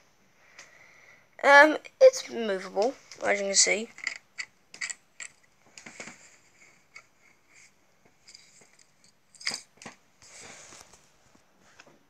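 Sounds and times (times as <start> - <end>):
plastic pieces clicking and scraping: 2.8 - 6.2.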